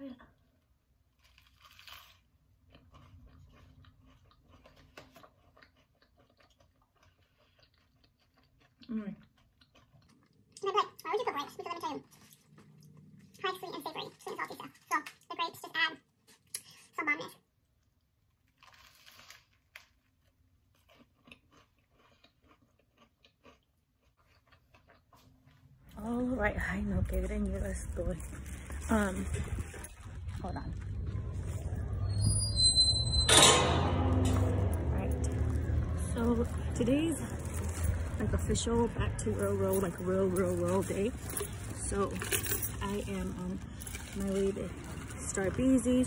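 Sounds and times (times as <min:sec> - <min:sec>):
faint chewing with clicks: 0:00.6 - 0:26.2
crunch of biting toast: 0:01.1 - 0:10.4, 0:18.4 - 0:25.6.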